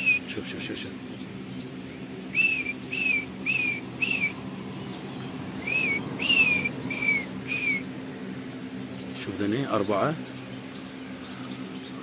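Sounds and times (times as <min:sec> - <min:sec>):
person whistling short notes: 0:02.4 - 0:04.3, 0:05.6 - 0:07.8.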